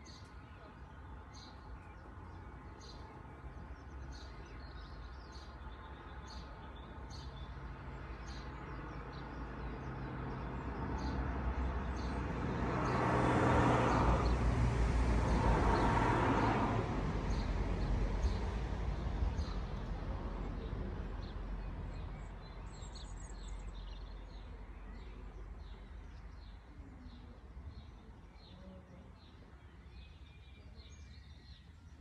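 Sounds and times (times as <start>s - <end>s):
motor vehicle approaching: 8.2s - 26.6s
small birds chirping: 19.2s - 32.0s.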